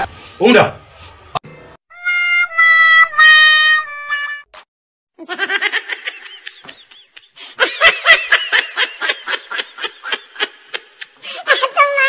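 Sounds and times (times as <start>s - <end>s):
person laughing: 5.2s - 12.0s.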